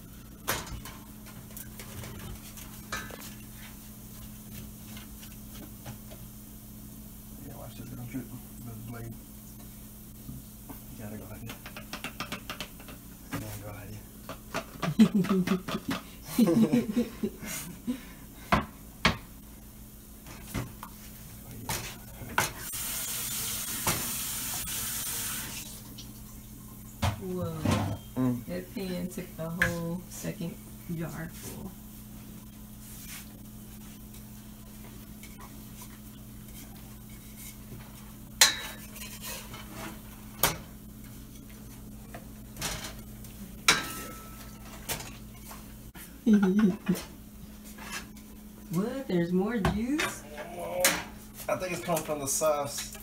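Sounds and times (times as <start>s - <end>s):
sauce sizzling in pan: 22.6s - 26.2s
cookware and utensils clinking: 38.4s - 41.7s, 43.6s - 45.7s.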